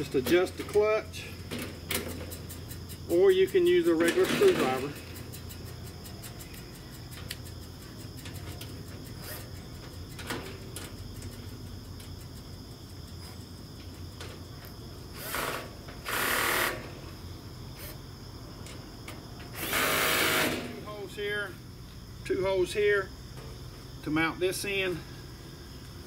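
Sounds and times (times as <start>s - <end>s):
handling cart parts and tools: 0.0s - 5.3s
crickets trilling: 0.0s - 26.0s.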